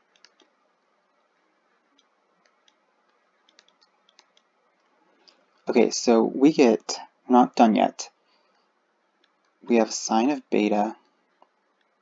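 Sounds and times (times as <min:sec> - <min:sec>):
computer mouse clicks: 0:00.0 - 0:05.5, 0:08.5 - 0:09.6, 0:11.0 - 0:12.0.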